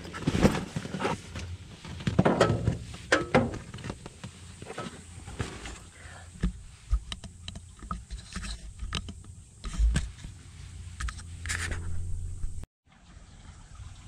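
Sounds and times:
steady low rumble: 8.9s - 12.7s.

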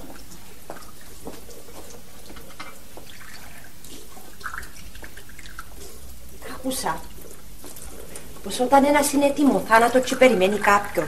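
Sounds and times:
water drips: 0.0s - 11.0s
water splashing in a washbasin: 0.0s - 11.0s.

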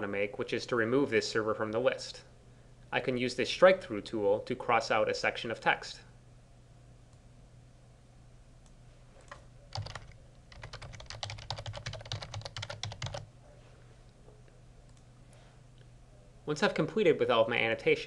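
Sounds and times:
keyboard typing: 9.2s - 13.3s.

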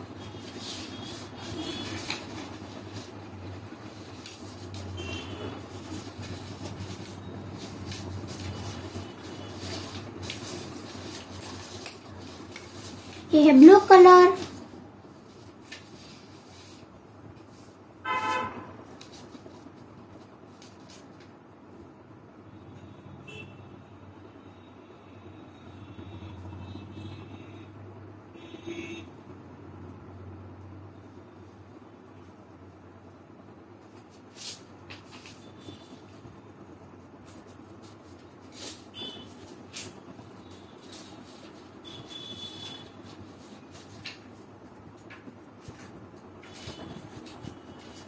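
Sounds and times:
low background hum: 0.0s - 48.0s
vehicle horn toot: 5.0s - 5.5s, 18.0s - 18.7s, 23.2s - 23.7s, 28.4s - 29.1s, 38.9s - 39.3s, 41.8s - 43.0s.

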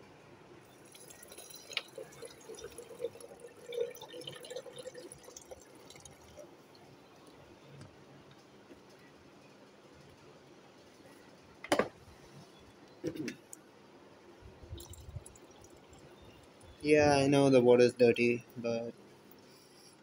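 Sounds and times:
water pouring into a jar: 0.7s - 7.0s, 14.7s - 16.8s.

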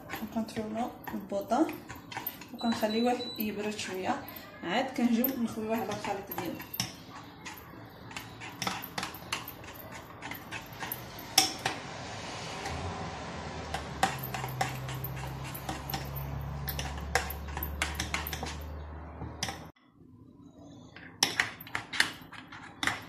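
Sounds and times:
spatula scraping a saucepan: 0.0s - 11.8s, 13.6s - 18.9s.

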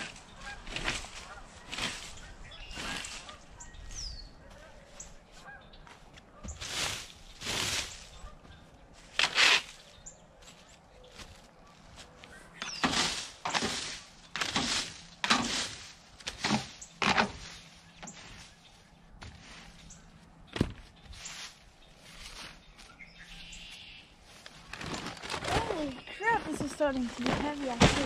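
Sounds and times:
plastic rake scraping leaves: 0.0s - 3.5s, 6.5s - 8.2s, 9.0s - 10.0s, 12.6s - 18.7s, 23.7s - 28.0s
dry garden debris rustling: 0.0s - 28.0s.

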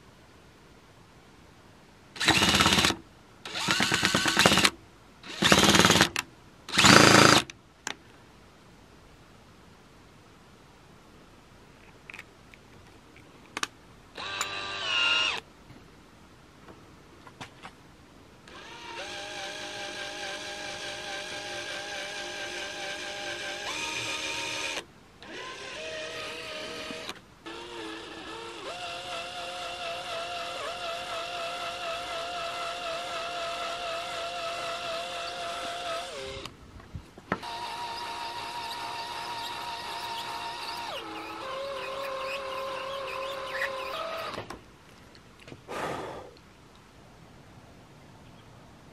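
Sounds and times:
cordless drill motor whining: 2.2s - 4.7s, 6.7s - 7.4s, 14.2s - 15.4s, 18.5s - 36.5s, 37.4s - 44.5s.

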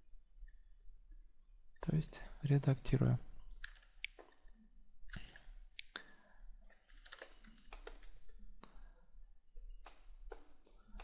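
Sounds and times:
computer mouse clicks: 6.6s - 8.9s, 9.8s - 11.0s.

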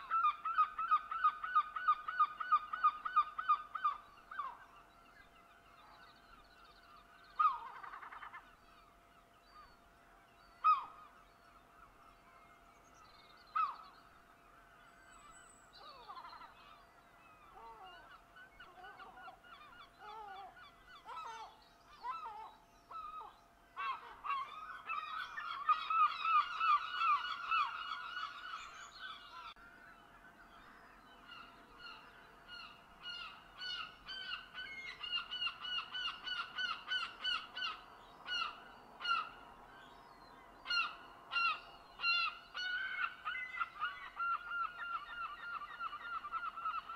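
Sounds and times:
flock of birds calling: 7.3s - 8.5s, 14.6s - 46.9s.

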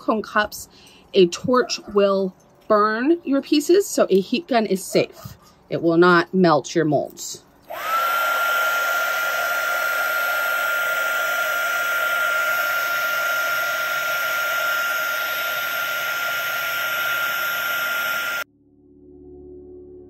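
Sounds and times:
heat gun running: 7.7s - 18.4s.

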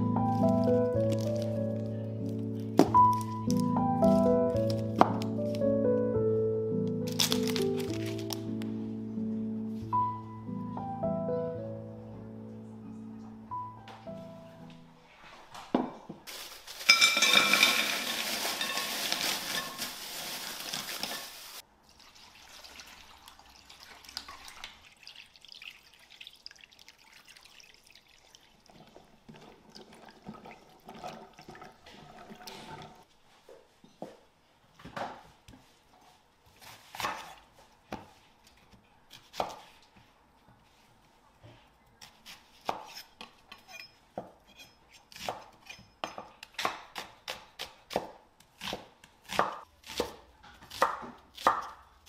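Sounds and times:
handling sounds: 7.0s - 8.6s, 16.2s - 21.6s
kitchen tap running: 17.4s - 33.0s.

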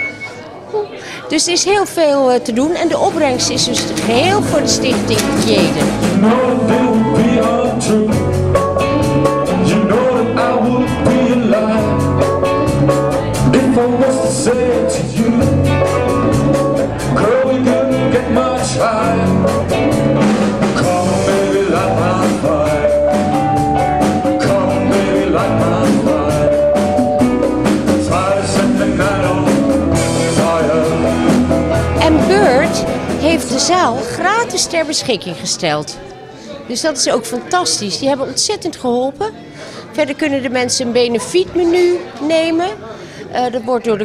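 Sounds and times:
keyboard: 2.5s - 37.5s
drums beating: 3.0s - 8.6s, 19.2s - 34.5s
person singing: 3.1s - 34.1s
live rock band: 3.1s - 34.2s
electric guitars: 3.2s - 34.1s.

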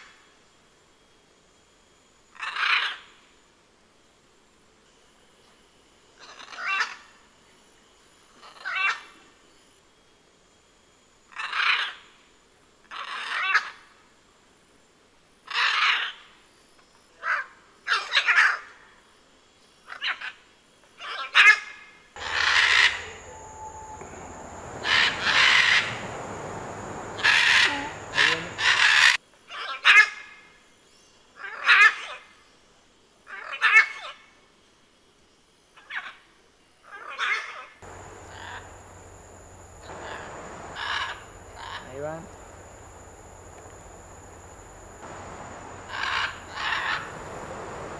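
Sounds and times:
macaws squawking: 22.2s - 29.2s, 37.9s - 39.1s, 39.8s - 42.5s, 45.1s - 47.6s.

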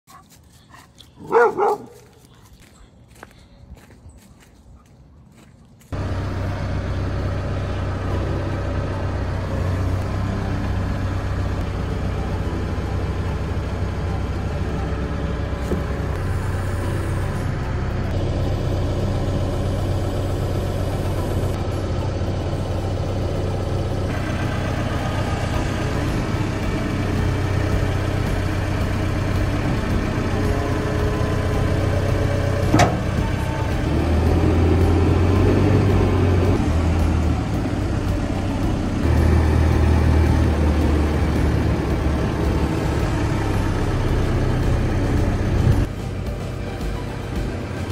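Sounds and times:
diesel engine running: 5.3s - 47.9s.

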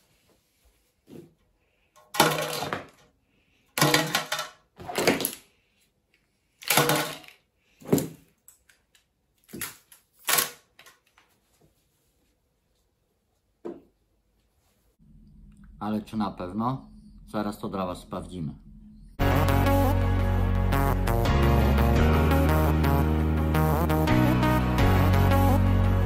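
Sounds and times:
objects clattering into mesh wastebasket: 6.6s - 8.1s.

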